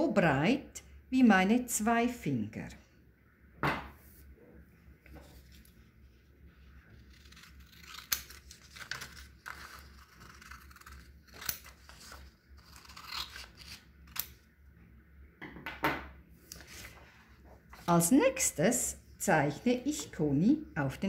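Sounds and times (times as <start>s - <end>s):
scissors cutting paper: 6.8s - 14.4s.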